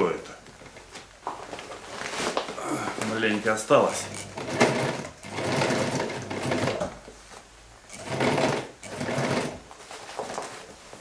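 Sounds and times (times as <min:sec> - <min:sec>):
sewing machine stitching: 0:03.9 - 0:07.0, 0:07.9 - 0:09.6.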